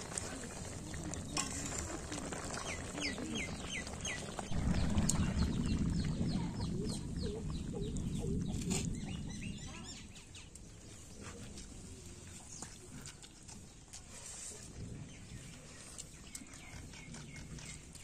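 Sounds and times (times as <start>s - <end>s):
low rumbling noise: 0.7s - 10.2s.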